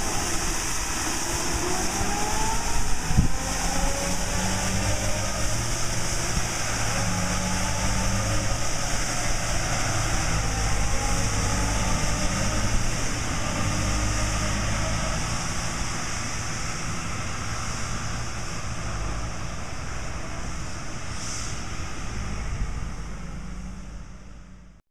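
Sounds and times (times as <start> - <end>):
brooms brushing pavement: 0.0 - 14.8
street sweeper engine hum: 0.0 - 24.8.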